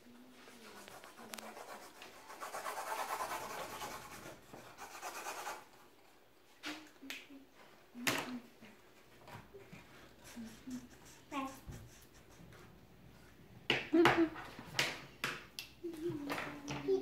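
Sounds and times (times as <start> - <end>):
markers scribbling on canvas: 0.4 - 5.8, 9.7 - 12.8.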